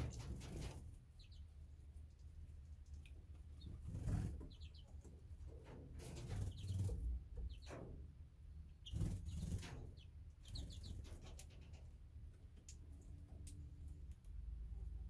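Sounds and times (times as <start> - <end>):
finches chirping: 3.6 - 5.0, 6.3 - 7.8, 8.8 - 11.3.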